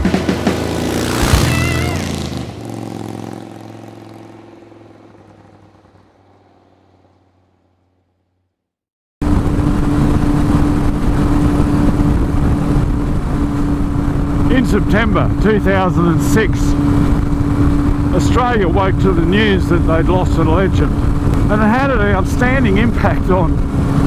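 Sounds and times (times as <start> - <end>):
motorcycle engine hum: 0.0 - 24.0
loud wind noise: 9.2 - 24.0.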